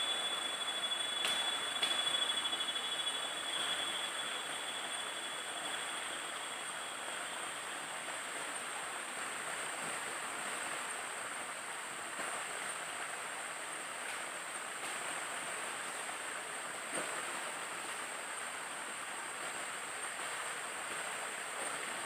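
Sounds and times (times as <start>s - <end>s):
high-pitched whine: 0.0s - 9.0s
stream cascade splashing: 0.0s - 22.0s.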